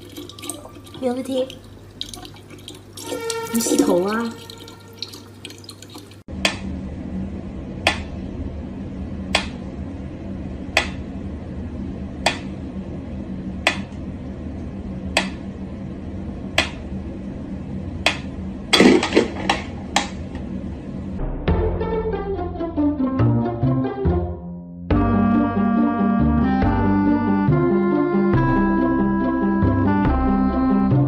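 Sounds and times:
low hum: 0:06.2 - 0:23.0.

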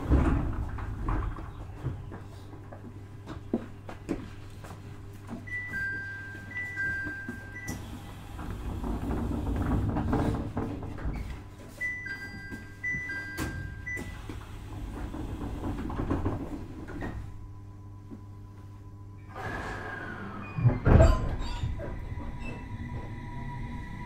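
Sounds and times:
steady low hum: 0:00.0 - 0:24.0
level-crossing warning bell: 0:05.5 - 0:07.8, 0:11.8 - 0:14.3.

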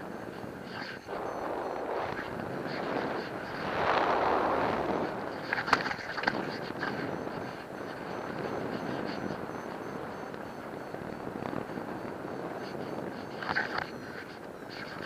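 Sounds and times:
wind rushing over microphone: 0:00.0 - 0:15.0
sharp crackles: 0:00.6 - 0:11.9.

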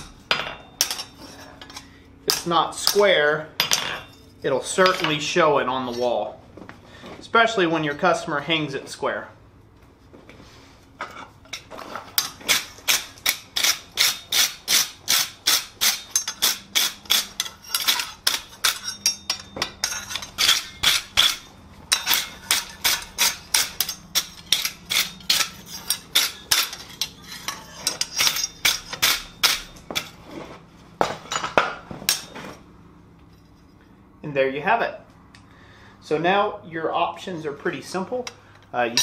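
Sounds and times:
wire brush scrubbing iron: 0:12.4 - 0:30.1.

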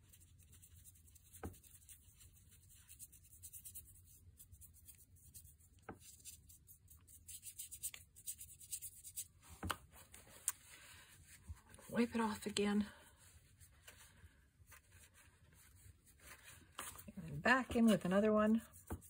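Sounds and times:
paintbrush scratching: 0:00.0 - 0:09.5, 0:14.7 - 0:19.0.

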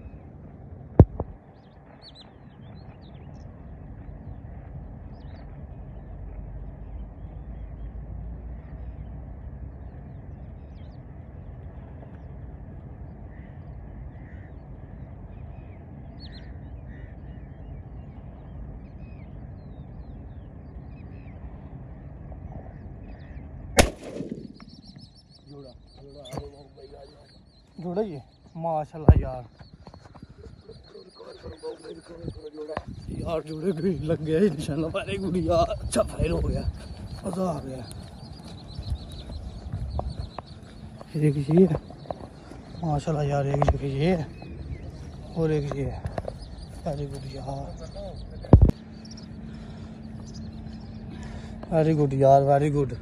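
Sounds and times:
low steady rumble: 0:00.0 - 0:26.2, 0:38.1 - 0:53.0
faint bird calls: 0:00.0 - 0:53.0
shotgun shot: 0:23.8 - 0:24.9.

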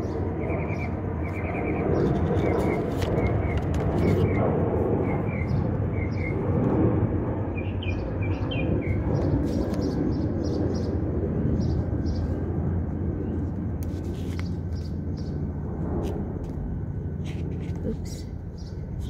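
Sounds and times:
small birds chirping: 0:00.0 - 0:04.4, 0:05.0 - 0:06.4, 0:07.5 - 0:12.5, 0:13.1 - 0:15.6, 0:17.2 - 0:19.0
wind rumble on microphone: 0:00.0 - 0:19.0.

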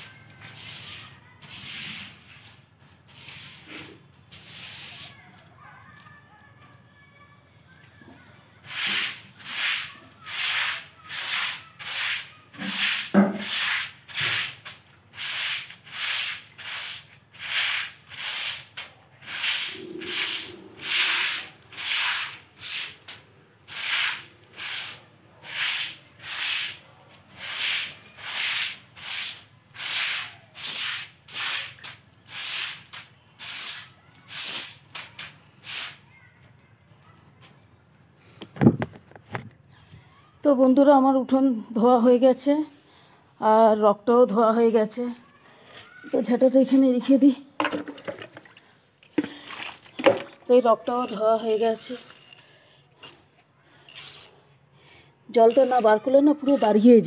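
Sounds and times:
stick broom sweeping wet ground: 0:00.0 - 0:05.3, 0:08.6 - 0:36.1, 0:53.9 - 0:54.4, 0:55.3 - 0:57.0.

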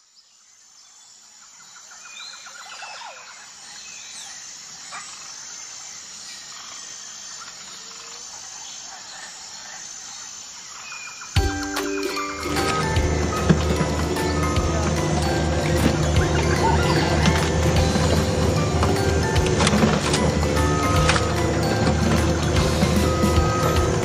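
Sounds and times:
faint insect calls: 0:00.0 - 0:24.0
music: 0:11.4 - 0:24.0.

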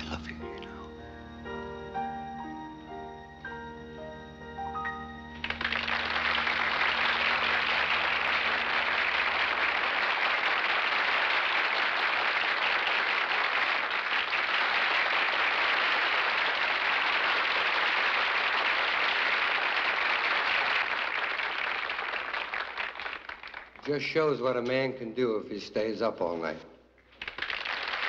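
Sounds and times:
sustained music chord: 0:00.0 - 0:10.0
crowd applauding: 0:05.3 - 0:24.2, 0:27.0 - 0:28.0.

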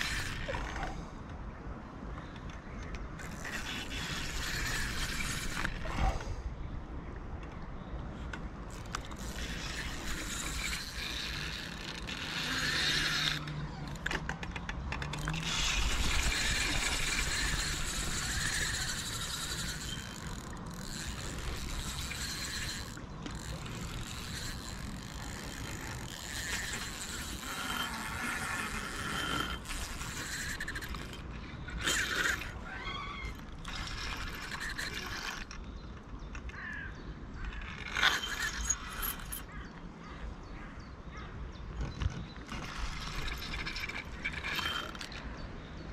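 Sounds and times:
fishing reel clicking ratchet: 0:00.0 - 0:00.9, 0:03.2 - 0:05.8, 0:08.7 - 0:14.2, 0:15.0 - 0:35.6, 0:37.6 - 0:39.5.

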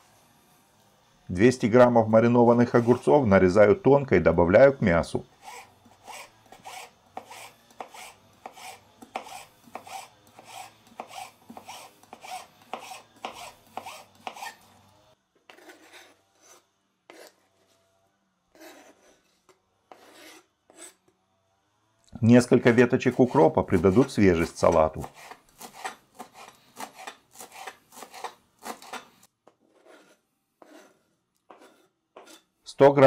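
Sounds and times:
knife slicing on plastic board: 0:23.7 - 0:32.4.

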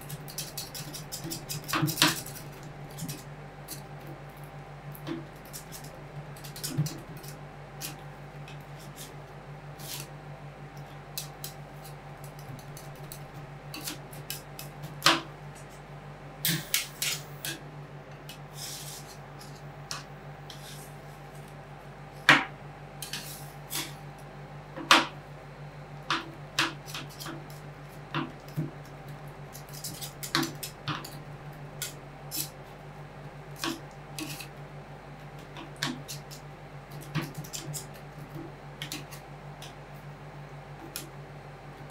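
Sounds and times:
steady low hum: 0:00.0 - 0:41.9.

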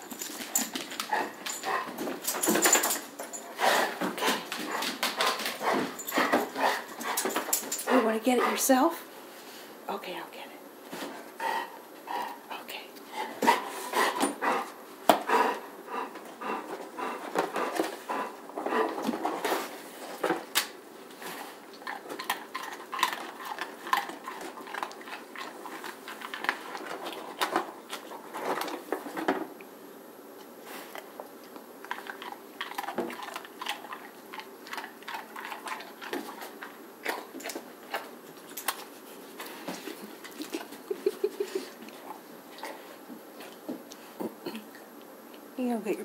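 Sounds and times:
dog crunching biscuit: 0:21.5 - 0:29.2, 0:31.4 - 0:42.2.

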